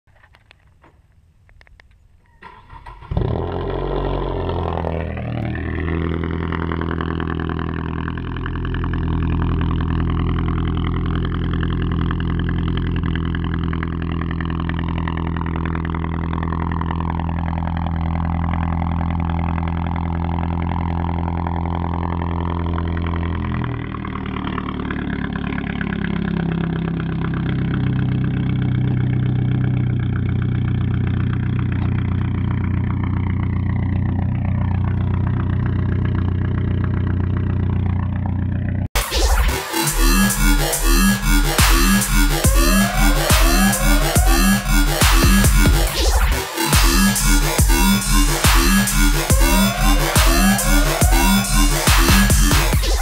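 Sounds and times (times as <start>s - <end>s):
car engine starting: 0.1s - 53.0s
loud car engine idling: 3.1s - 53.0s.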